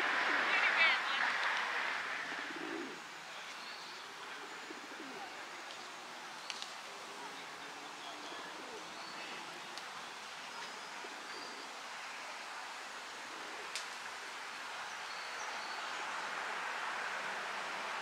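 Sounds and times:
steady hiss: 0.0 - 18.0
faint birdsong: 2.2 - 17.2
pigeon cooing: 2.3 - 3.0, 4.4 - 5.4.

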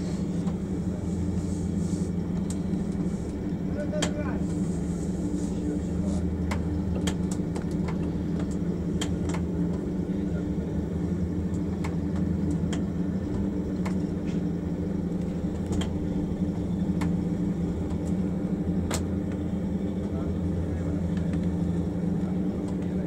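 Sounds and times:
low machine hum: 0.0 - 23.0.

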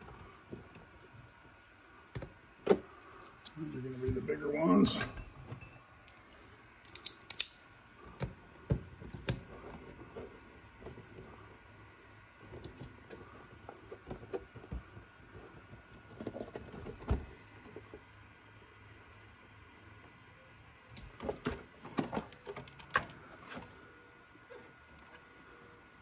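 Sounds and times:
small parts and tools clicking: 6.8 - 7.6.

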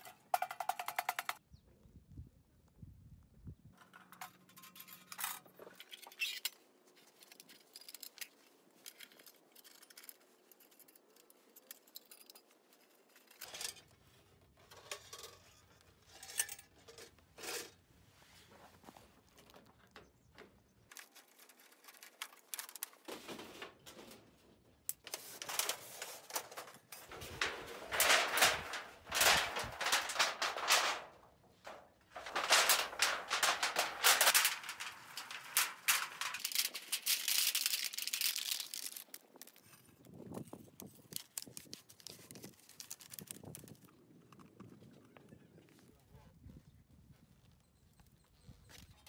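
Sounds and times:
metal parts clinking and scraping: 3.8 - 14.0, 14.6 - 17.7, 24.9 - 39.9.

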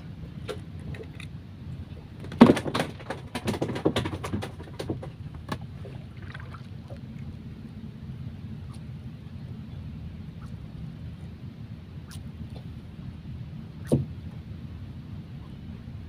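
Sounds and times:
steady low rumble: 0.0 - 3.5, 4.1 - 16.0
knocks on wooden boat: 2.2 - 5.7, 13.9 - 14.1.

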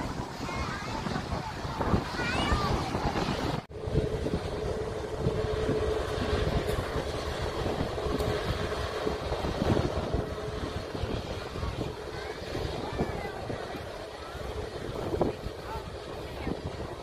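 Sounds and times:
jet engines rushing noise: 0.0 - 17.0
held humming tone: 3.7 - 17.0.

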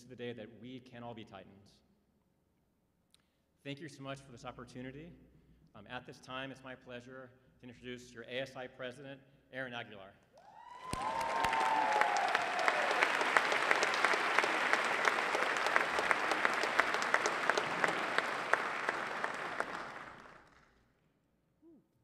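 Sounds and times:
audience applauding: 10.6 - 20.7.

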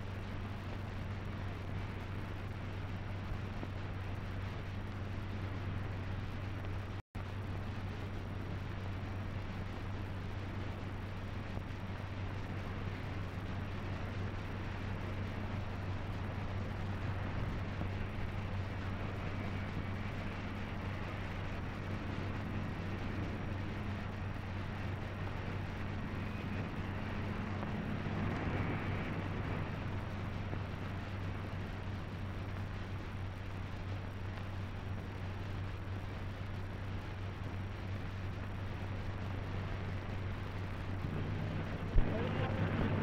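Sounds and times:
low hum: 0.0 - 43.0.

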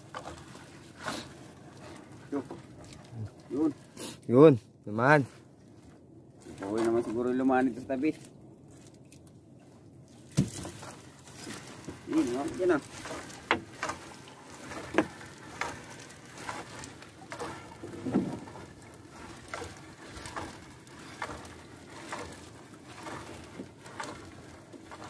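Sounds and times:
wet net splashing and dripping: 10.0 - 25.0
knocks on boat side: 10.3 - 10.7
dull thump: 10.3 - 10.8.

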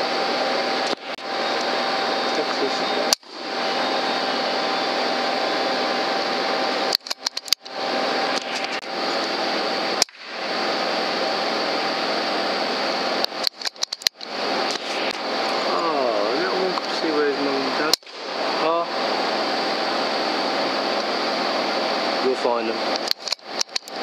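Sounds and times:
faint constant whine: 0.0 - 24.0
sharp clicks: 6.9 - 8.9, 13.2 - 15.2, 22.9 - 24.0.

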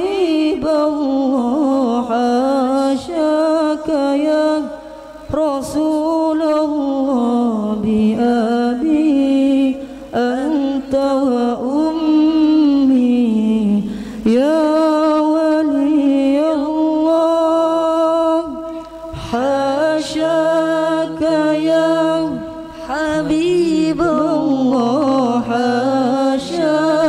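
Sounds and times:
men singing unaccompanied: 19.2 - 27.0.

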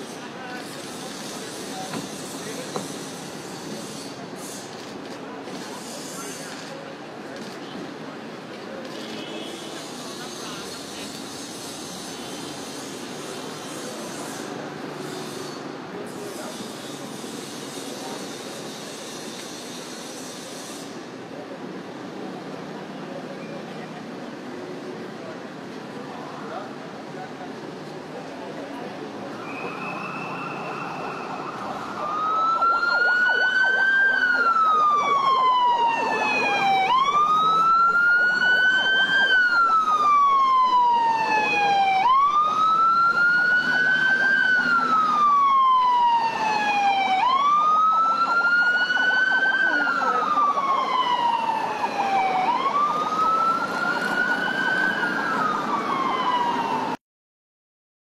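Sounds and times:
traffic noise: 0.0 - 57.0
police siren wailing: 29.4 - 57.0.

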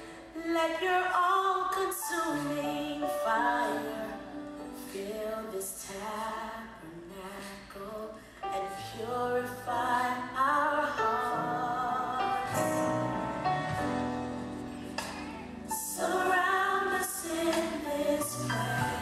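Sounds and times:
woman singing gospel song: 0.2 - 13.2, 15.7 - 19.0
sustained instrumental backing: 11.6 - 19.0.

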